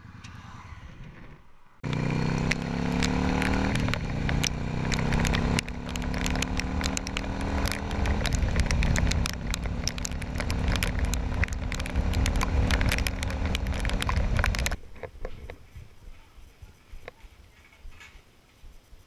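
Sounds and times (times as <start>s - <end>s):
motorcycle engine running: 1.8s - 14.8s
raindrops hitting camera: 1.8s - 14.8s.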